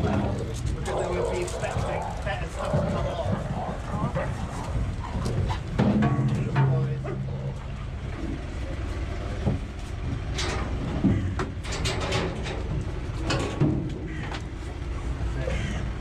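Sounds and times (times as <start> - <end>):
vehicle engine rumbling: 0.0 - 16.0
vehicle knocks and rattles: 5.4 - 7.5, 9.3 - 14.6.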